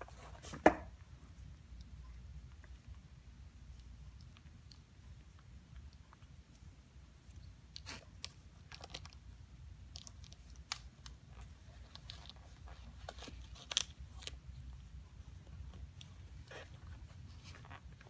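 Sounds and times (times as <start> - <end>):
shoelaces rustling and scraping: 9.9 - 18.0.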